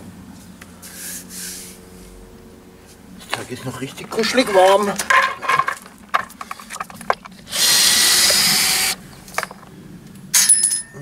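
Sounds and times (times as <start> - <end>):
cordless drill running: 7.5 - 9.0.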